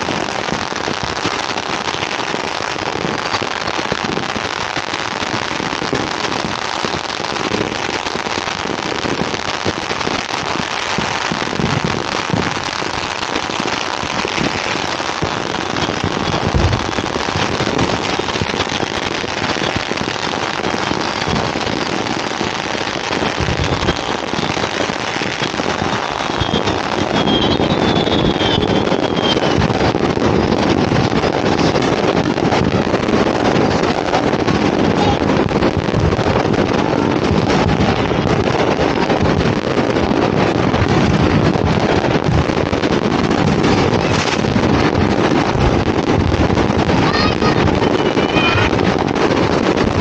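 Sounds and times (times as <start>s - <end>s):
firecrackers crackling: 0.0s - 50.0s
heavy booms: 15.9s - 18.5s, 40.4s - 50.0s.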